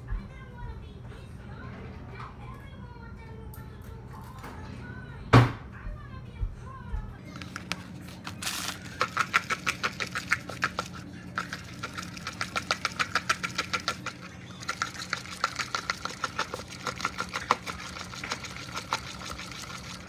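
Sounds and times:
utensil clicking in bowl: 0:08.4 - 0:20.0.

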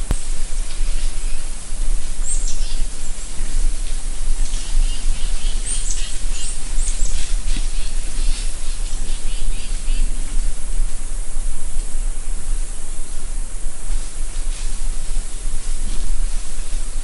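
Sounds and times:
low rumble: 0:00.0 - 0:17.0
steady hiss: 0:00.0 - 0:17.0
birds whistling: 0:02.2 - 0:03.2, 0:04.4 - 0:10.2.

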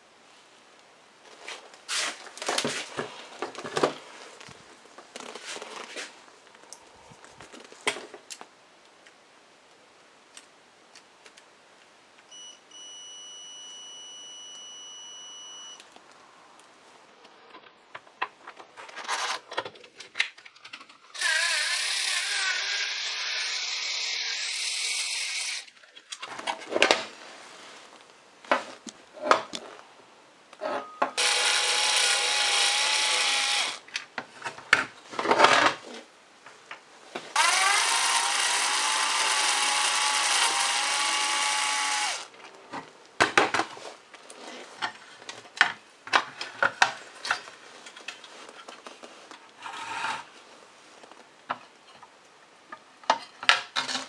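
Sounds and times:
power screwdriver whining: 0:21.2 - 0:25.7, 0:31.2 - 0:33.8, 0:37.4 - 0:42.3.

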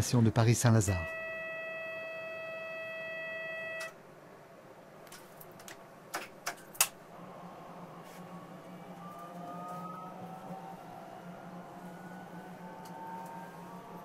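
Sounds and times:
steady electronic tone: 0:01.0 - 0:04.0.

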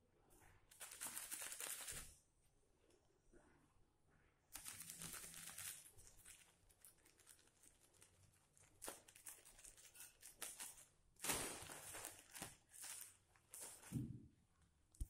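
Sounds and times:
plastic bag crinkling: 0:00.7 - 0:02.1, 0:04.6 - 0:14.0.

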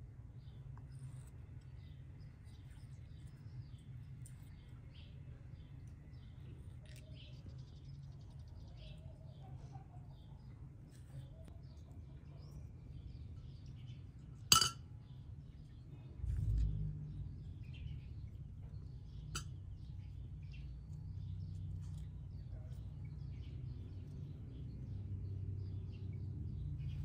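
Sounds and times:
kitchenware clinking: 0:14.5 - 0:14.8
low rumble: 0:16.0 - 0:19.2.

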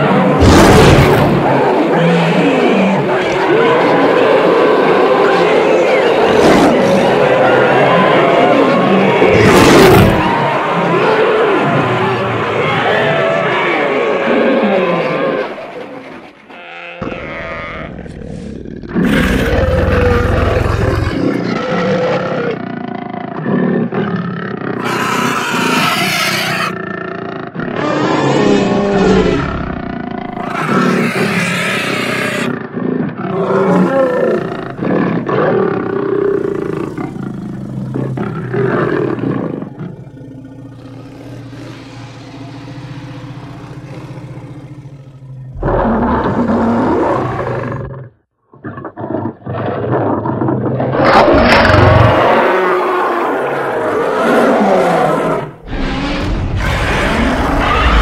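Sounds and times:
dinosaur roars and growls: 0:00.0 - 0:58.0
low rumbling: 0:36.1 - 0:47.7.

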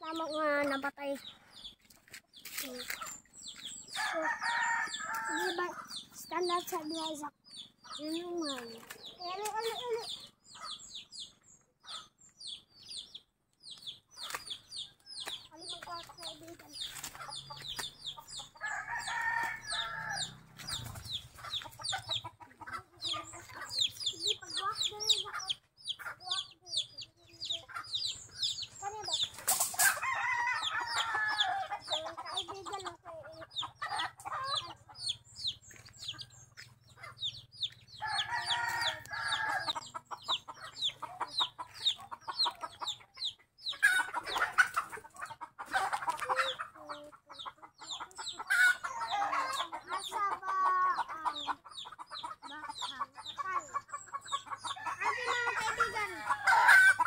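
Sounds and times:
roosters crowing: 0:03.9 - 0:06.0, 0:18.4 - 0:22.3, 0:29.6 - 0:32.1, 0:37.9 - 0:40.0, 0:54.4 - 0:57.0.

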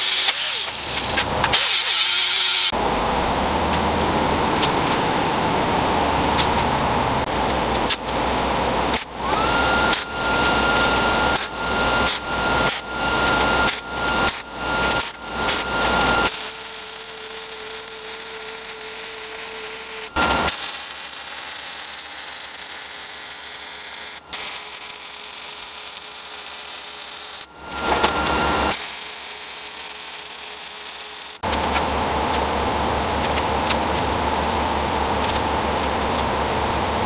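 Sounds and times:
power tool whining on steel: 0:00.0 - 0:02.8, 0:09.0 - 0:31.4
power tool hiss with low hum: 0:08.9 - 0:31.4.

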